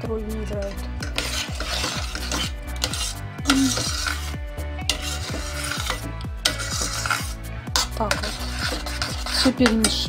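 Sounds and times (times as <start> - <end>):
metal spoon scraping saucepan: 0.5 - 10.0.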